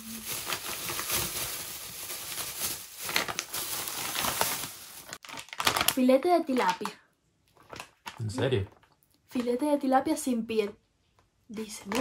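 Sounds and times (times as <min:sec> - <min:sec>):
plastic packaging crinkling: 0:00.0 - 0:09.0, 0:11.7 - 0:12.0.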